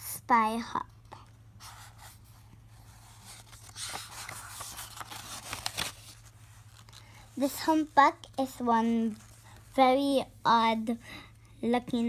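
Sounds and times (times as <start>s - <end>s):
paper page turning: 1.6s - 7.2s.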